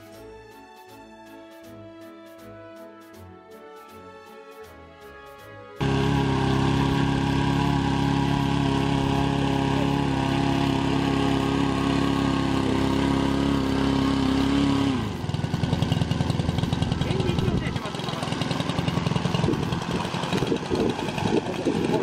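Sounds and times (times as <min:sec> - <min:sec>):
small petrol engine and propeller: 0:05.8 - 0:22.0.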